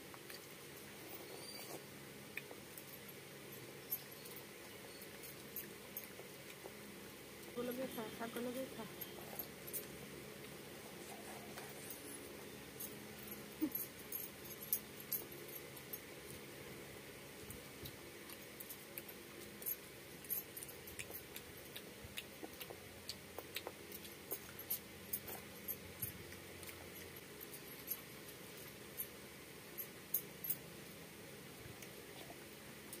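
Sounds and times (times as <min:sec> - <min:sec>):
wet chewing and lip smacks: 0:17.5 - 0:27.5.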